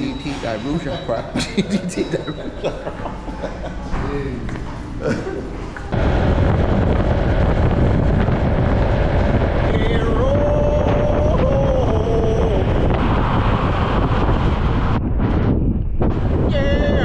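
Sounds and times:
scooter engine and road noise: 0:05.7 - 0:15.5
wind buffeting microphone: 0:05.9 - 0:17.0.

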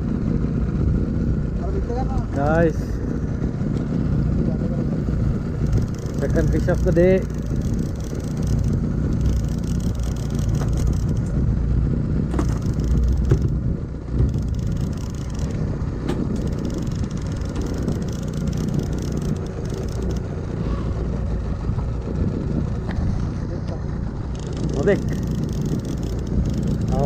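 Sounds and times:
outboard motor running: 0:00.0 - 0:27.0.

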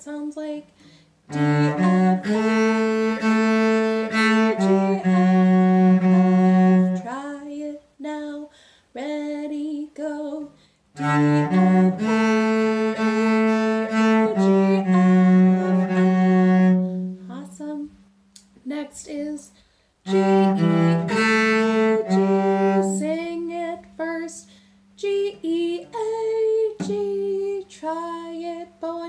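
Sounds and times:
bowed cello notes: 0:01.2 - 0:07.2, 0:10.9 - 0:17.6, 0:20.1 - 0:27.6.

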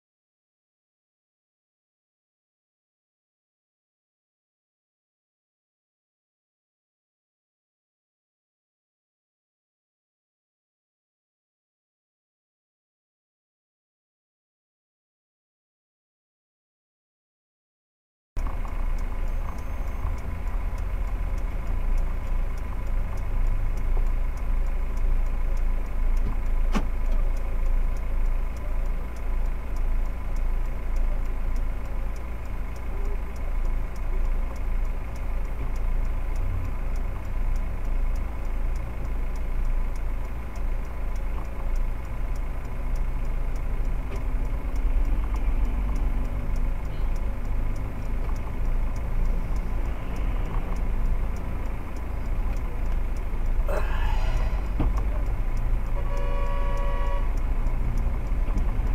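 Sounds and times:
car engine idling: 0:18.4 - 0:58.9
faint regular ticking: 0:18.4 - 0:58.9
sharp click: 0:26.2 - 0:27.2.

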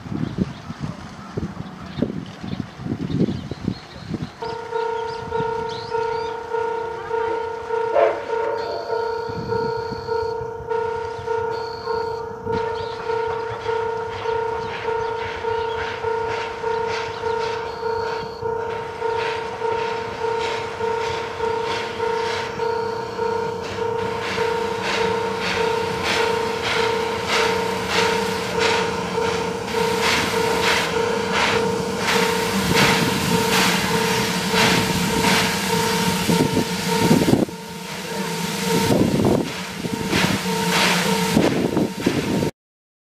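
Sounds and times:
steam locomotive chuffing knocks: 0:00.0 - 0:42.5
level crossing alarm clanging: 0:04.4 - 0:42.5
loud steam bursts: 0:18.7 - 0:42.5.

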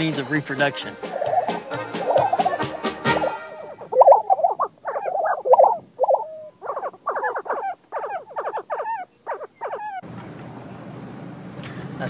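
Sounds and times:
prairie chickens calling: 0:00.0 - 0:10.1.

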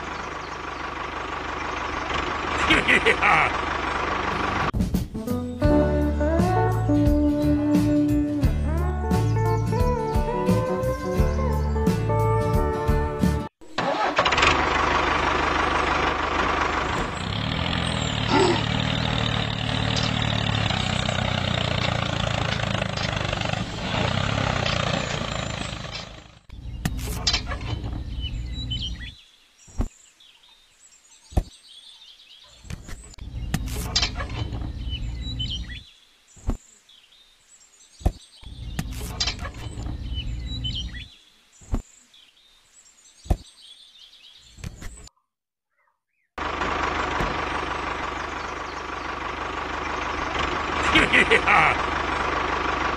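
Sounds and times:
birds chirping faintly: 0:00.0 - 0:04.1, 0:17.0 - 0:52.5.

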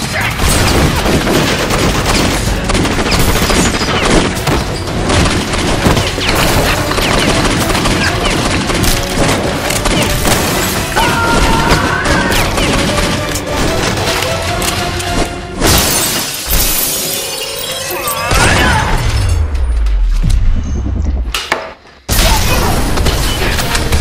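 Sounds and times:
rapid gunshots: 0:00.0 - 0:14.4
background music: 0:00.0 - 0:21.5, 0:22.1 - 0:24.0.

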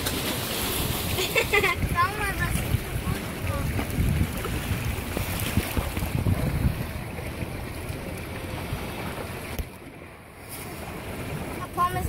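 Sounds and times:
rush of wind and sea: 0:00.0 - 0:12.0
wind buffeting microphone: 0:00.0 - 0:12.0.

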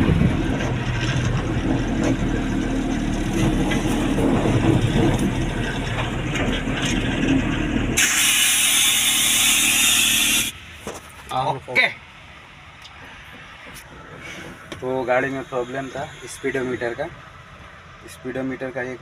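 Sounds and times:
diesel truck engine running: 0:00.0 - 0:19.0
loud steady hiss: 0:08.0 - 0:10.6, 0:14.2 - 0:17.3.

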